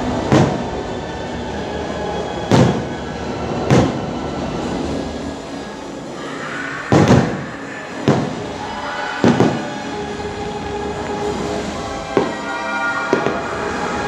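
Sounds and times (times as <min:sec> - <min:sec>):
fireworks booming: 0:00.0 - 0:01.0, 0:02.5 - 0:04.2, 0:06.8 - 0:09.9, 0:12.0 - 0:14.0
show music: 0:06.8 - 0:14.0.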